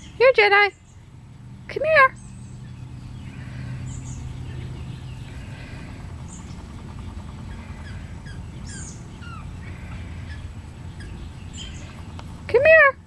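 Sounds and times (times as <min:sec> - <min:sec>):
birds chirping: 0:00.0 - 0:13.0
low steady hum: 0:00.0 - 0:13.0.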